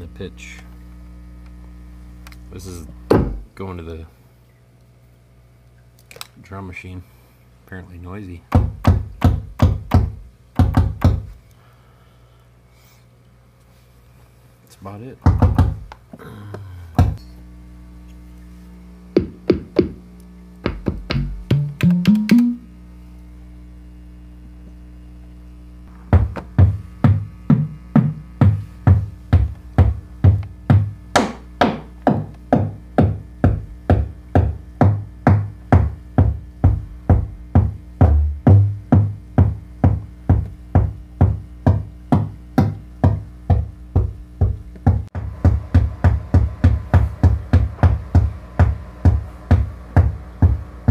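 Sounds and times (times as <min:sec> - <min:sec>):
low synthesizer drone: 0:16.2 - 0:26.1
synthesizer percussion hits: 0:20.6 - 0:22.7, 0:34.9 - 0:41.4.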